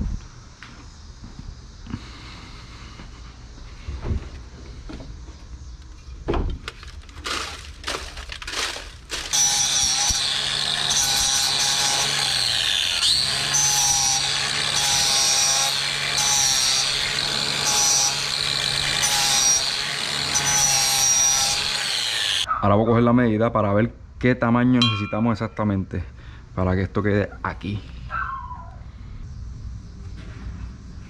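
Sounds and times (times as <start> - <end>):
angle grinder grinding metal: 7.2 - 22.5.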